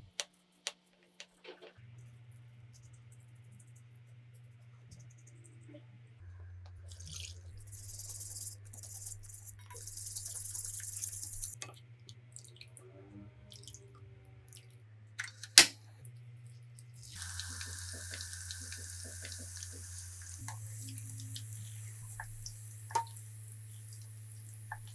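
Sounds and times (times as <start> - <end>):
oil sizzling in a pan: 17.0 - 24.9.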